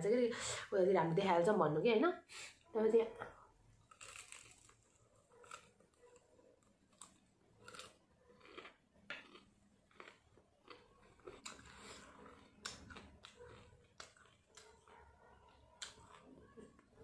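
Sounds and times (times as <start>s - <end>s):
chewing crunchy fried chicken: 3.8s - 17.0s.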